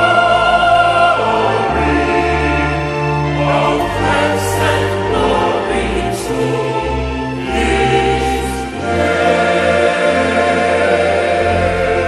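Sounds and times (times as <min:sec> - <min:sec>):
choir singing sustained chords: 0:00.0 - 0:12.0.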